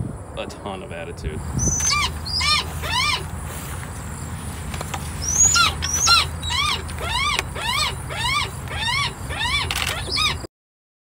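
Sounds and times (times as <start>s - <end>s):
hawk calling: 1.6s - 3.8s, 5.1s - 10.5s.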